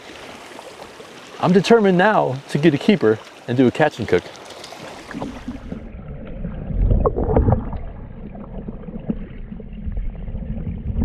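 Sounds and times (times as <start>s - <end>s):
river current rumbling underwater: 0.0s - 11.0s
underwater gurgles and knocks: 4.4s - 11.0s.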